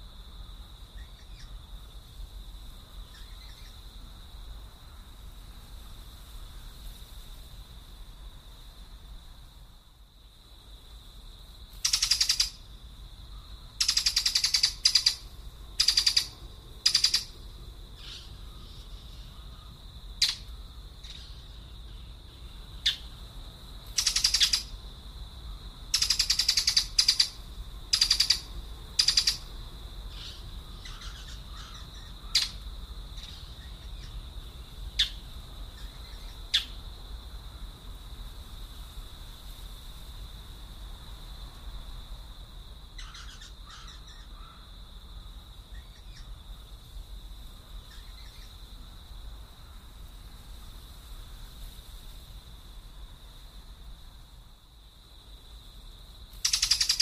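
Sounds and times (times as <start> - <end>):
bird harsh chattering calls: 11.8 - 12.6, 13.8 - 17.3, 20.2 - 21.4, 24.0 - 24.7, 26.0 - 29.4, 30.1 - 32.6, 56.4 - 57.0.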